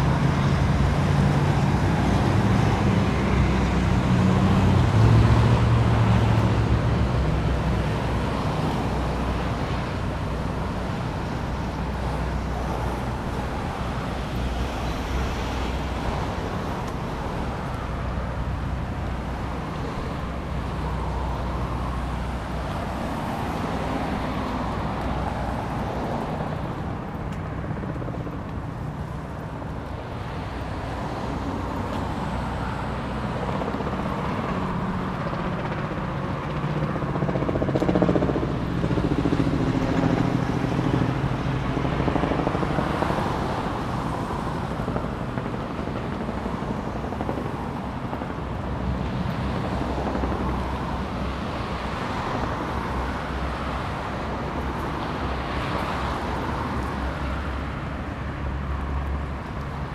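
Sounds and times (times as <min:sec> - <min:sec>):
passing cars: 0:00.0 - 0:59.9.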